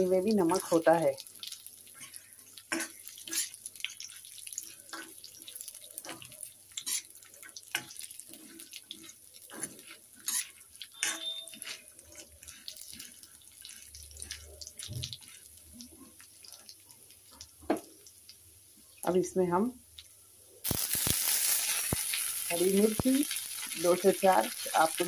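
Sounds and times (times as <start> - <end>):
light sizzle: 0.0 - 25.0
metal spatula scraping a pan: 1.9 - 5.2, 6.0 - 15.5.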